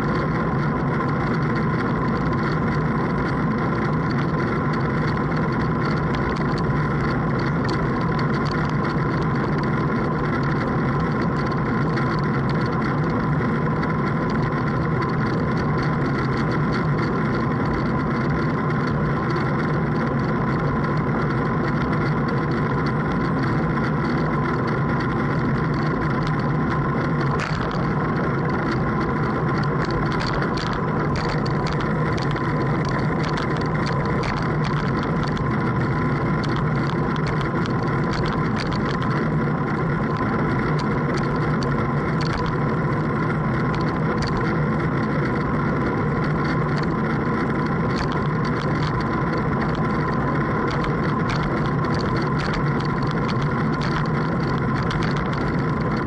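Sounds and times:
boat engine running: 0.0 - 56.0.

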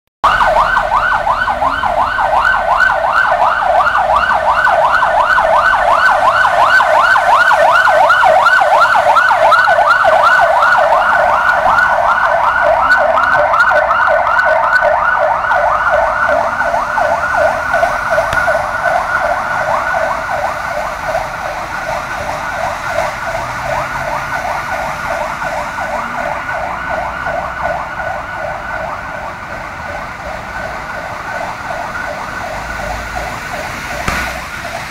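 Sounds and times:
siren yelping: 0.2 - 34.9.

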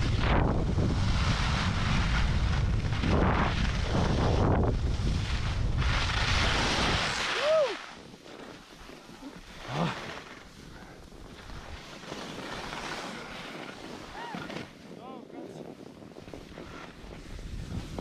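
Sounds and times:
skis scraping on snow: 0.0 - 18.0
wind rushing over microphone: 0.0 - 18.0.

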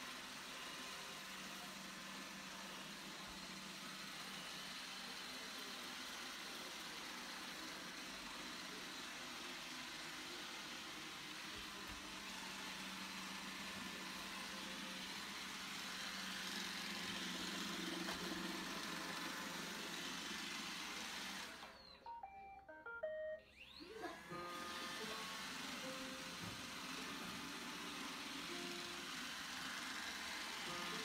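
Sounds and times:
robot vacuum whirring: 0.2 - 22.0, 23.5 - 31.0
electronic beep tones: 22.0 - 23.5.

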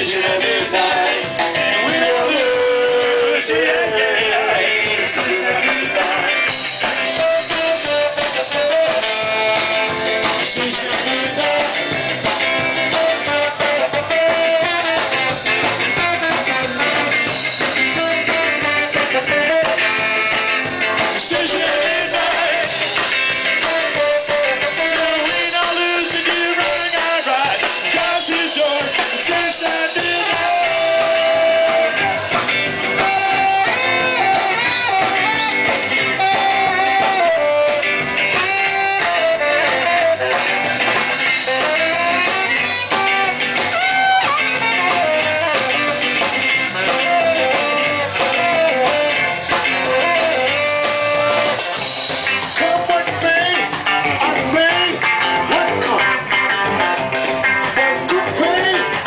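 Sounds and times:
drums: 0.0 - 59.0
guitar: 0.0 - 59.0
tenor saxophone solo: 6.1 - 25.8, 29.9 - 52.8.

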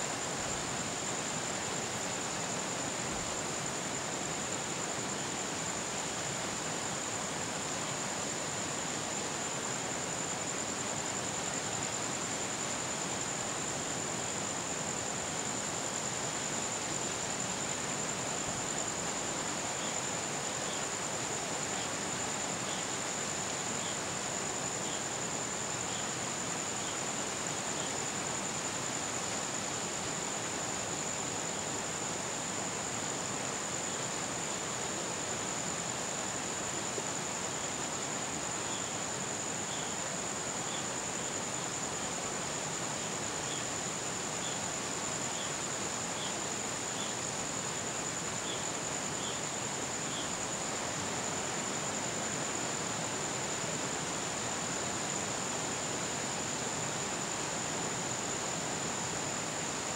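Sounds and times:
steady hiss: 0.0 - 59.9.

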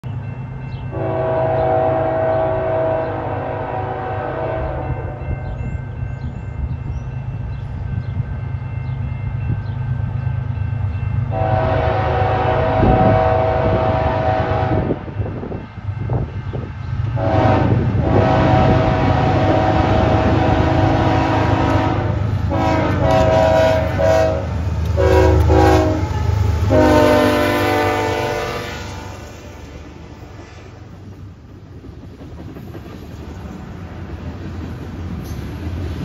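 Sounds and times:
locomotive air horn blasts: 0.9 - 5.2, 11.3 - 15.1, 17.2 - 29.6.

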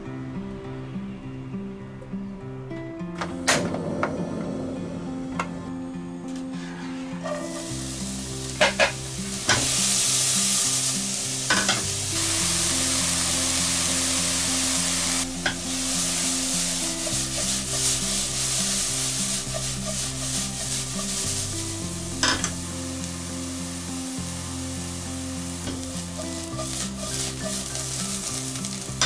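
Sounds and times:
vegetables sizzling in oil: 7.2 - 29.0.

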